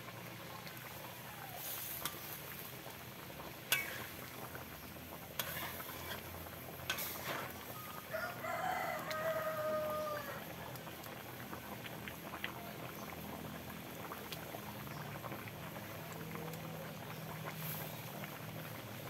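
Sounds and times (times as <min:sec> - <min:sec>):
rooster crowing: 0:07.9 - 0:10.6.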